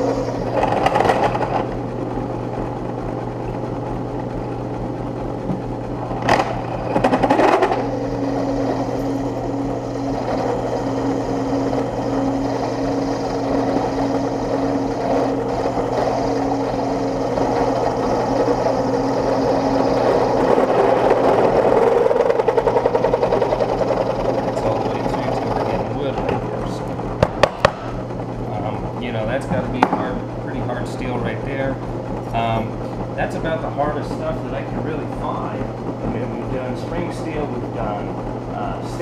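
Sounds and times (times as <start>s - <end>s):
drill bit grinding into steel: 0.0s - 1.7s, 6.1s - 26.4s
drill press motor hum: 0.0s - 39.0s
steady whine: 0.0s - 39.0s.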